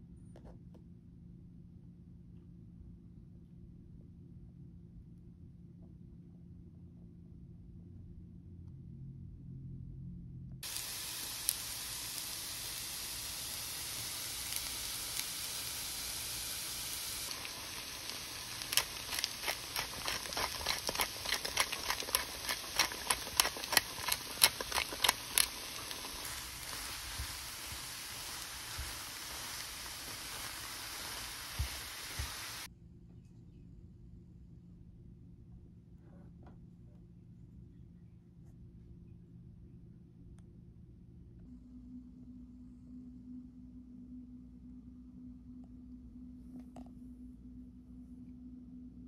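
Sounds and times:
food sizzling in a frying pan: 0:10.6 - 0:32.7.

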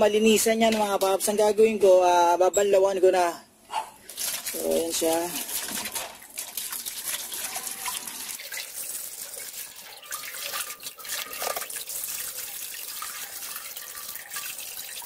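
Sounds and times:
hose water splashing into metal basin: 0:04.0 - 0:15.0.

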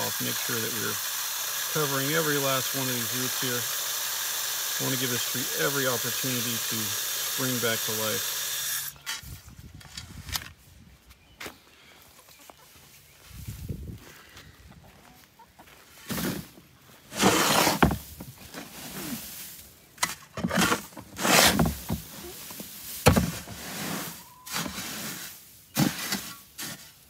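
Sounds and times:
hoe scraping soil in plastic tub: 0:00.0 - 0:10.2, 0:16.0 - 0:27.0.

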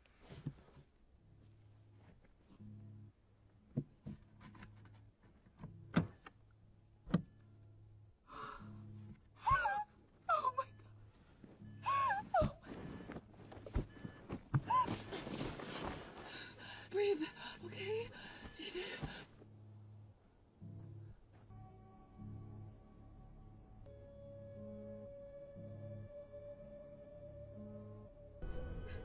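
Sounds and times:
low droning background: 0:05.8 - 0:29.0
woman gasping and whimpering: 0:08.3 - 0:08.8, 0:14.7 - 0:19.4.

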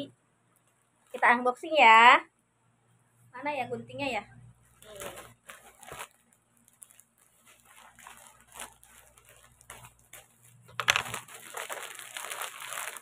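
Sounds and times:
plastic bag crinkling: 0:01.0 - 0:01.4, 0:04.8 - 0:13.0.

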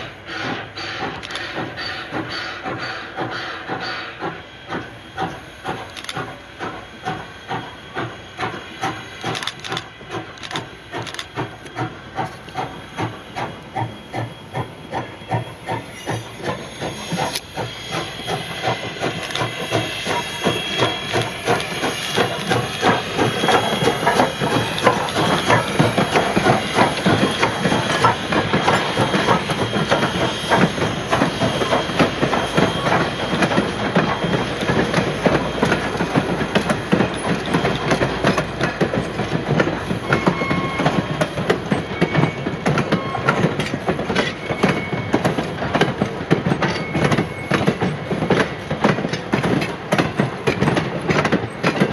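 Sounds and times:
steady steam hiss: 0:00.0 - 0:40.1
steam locomotive exhaust chuffing: 0:00.0 - 0:51.9
train wheels clicking over rail joints: 0:00.0 - 0:51.9.

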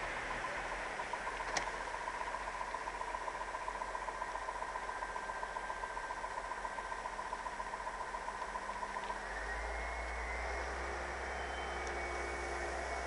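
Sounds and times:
diesel locomotive engine pulsing: 0:00.0 - 0:13.0
thin steady whine: 0:00.0 - 0:13.0.

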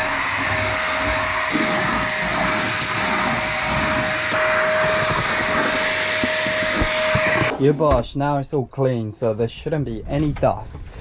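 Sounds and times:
vacuum cleaner whining: 0:00.0 - 0:07.5.

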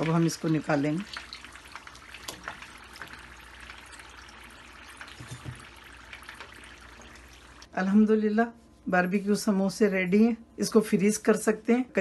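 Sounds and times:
food deep-frying in oil: 0:00.0 - 0:07.7.

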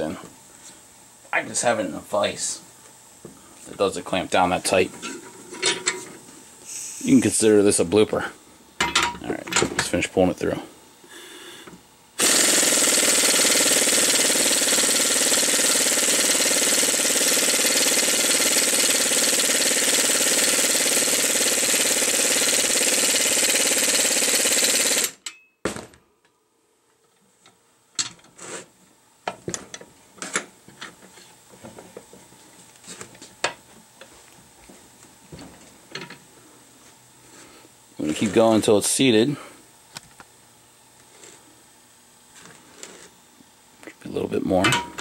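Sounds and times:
impact wrench hammering: 0:12.2 - 0:26.0.

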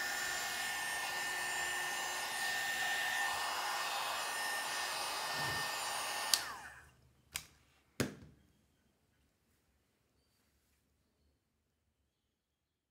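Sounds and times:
hot air gun blowing: 0:00.0 - 0:06.7.

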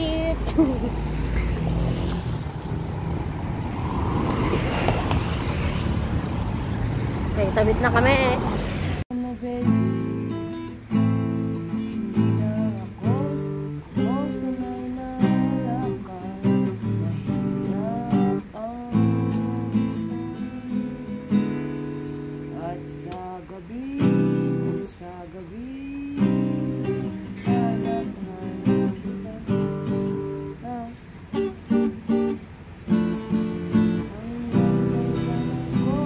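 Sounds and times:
acoustic guitar playing: 0:00.0 - 0:36.0.

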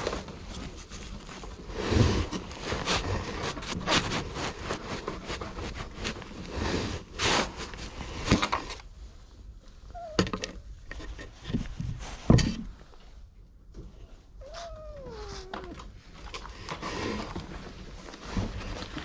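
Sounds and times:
rustling and handling noise: 0:00.0 - 0:19.0
cat meowing: 0:09.9 - 0:10.4, 0:14.4 - 0:15.9
person calling a cat: 0:10.0 - 0:10.4, 0:14.4 - 0:15.9.

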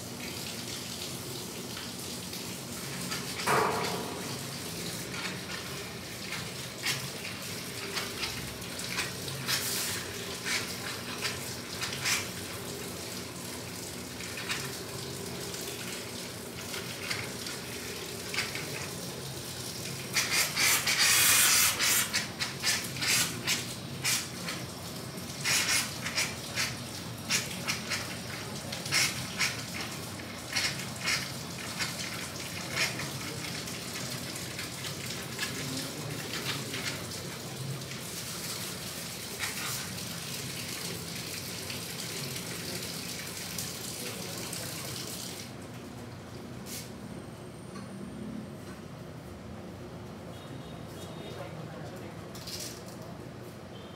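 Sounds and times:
tap water running: 0:00.0 - 0:46.8
water splashes and clicks: 0:01.7 - 0:12.7, 0:14.1 - 0:14.9, 0:15.7 - 0:19.2, 0:19.8 - 0:37.4.

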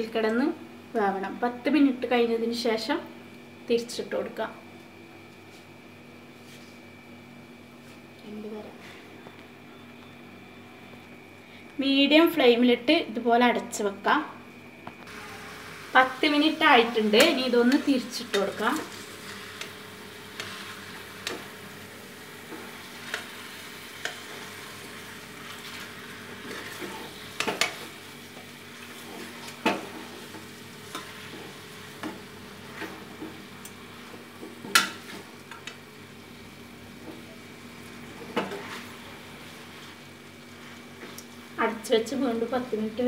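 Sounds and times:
chicken sizzling in oil: 0:15.1 - 0:42.8.

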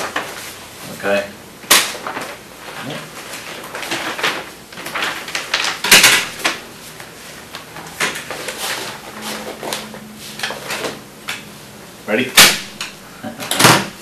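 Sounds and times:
paper sheets rustling: 0:00.0 - 0:11.0.

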